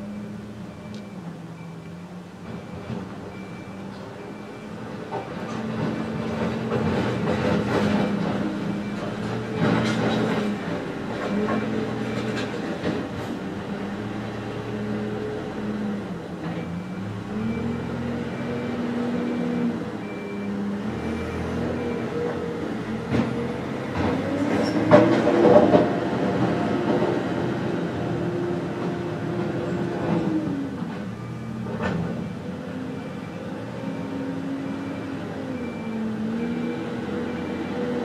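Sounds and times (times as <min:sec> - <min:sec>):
excavator diesel engine working: 0:00.0 - 0:38.0
metal clanks and scraping: 0:05.4 - 0:13.3.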